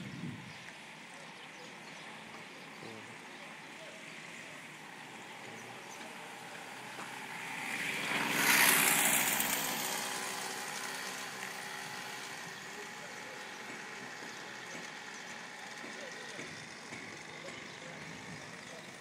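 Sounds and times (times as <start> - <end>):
street background: 0.0 - 19.0
vehicle passing close by: 4.8 - 14.2.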